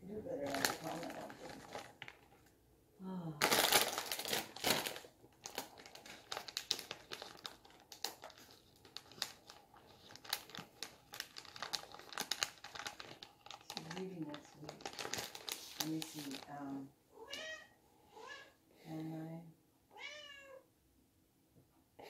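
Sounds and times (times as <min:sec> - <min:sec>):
plastic packaging crinkling: 0:00.3 - 0:02.5, 0:03.4 - 0:16.9.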